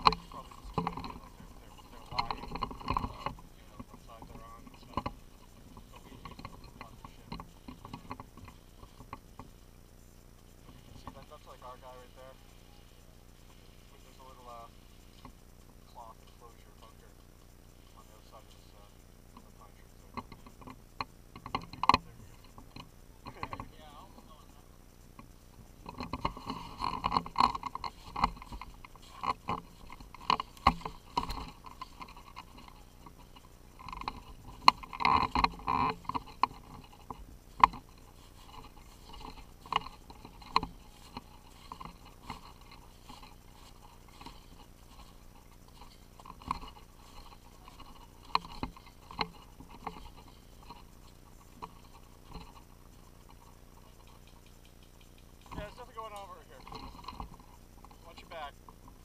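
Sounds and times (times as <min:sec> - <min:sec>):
gear rustling: 0:00.0 - 0:09.6, 0:19.7 - 0:59.0
sharp clicks: 0:25.2 - 0:58.8.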